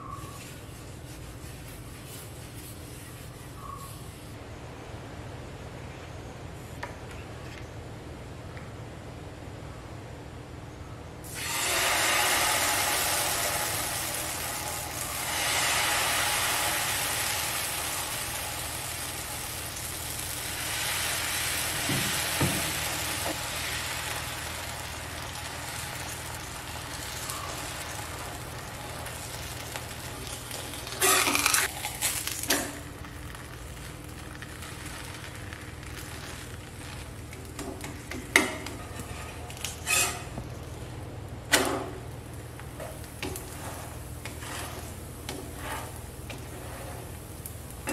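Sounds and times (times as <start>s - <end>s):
batter sizzling on hot griddle: 11.2s - 47.9s.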